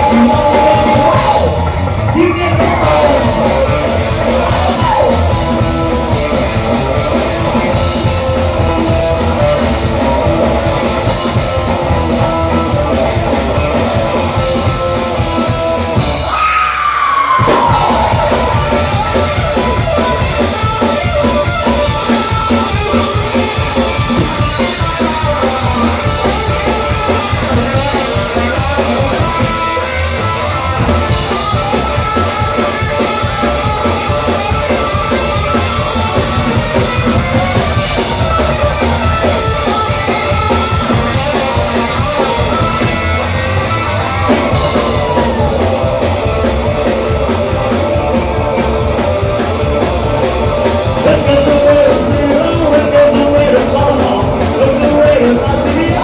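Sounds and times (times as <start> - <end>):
person singing: 0.0 - 5.4, 50.9 - 56.0
live rock band playing: 0.0 - 56.0.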